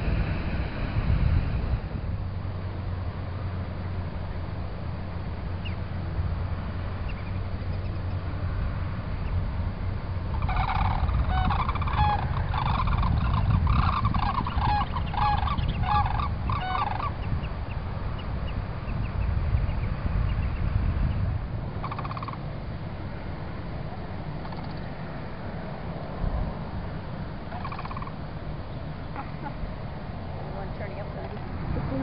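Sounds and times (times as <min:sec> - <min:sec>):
low wind rumble: 0:00.0 - 0:32.0
cranes bugling calls: 0:10.2 - 0:18.3, 0:21.8 - 0:22.5, 0:24.4 - 0:24.8, 0:27.4 - 0:29.8.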